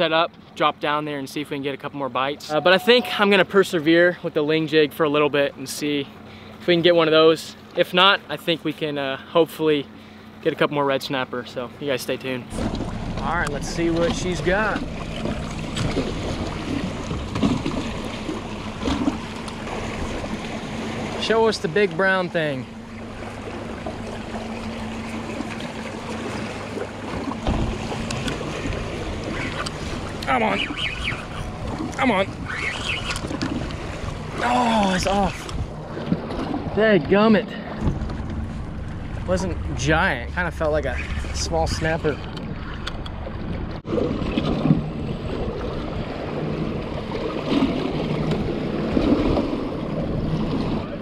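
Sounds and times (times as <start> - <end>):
outboard motor idling: 0.0 - 51.0
water slapping against hull: 12.2 - 51.0
thump: 37.8 - 38.3.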